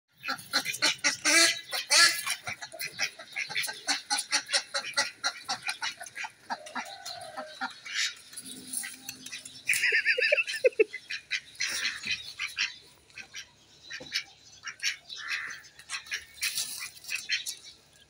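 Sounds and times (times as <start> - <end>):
duck quacking harshly: 0.2 - 6.3, 10.4 - 16.4.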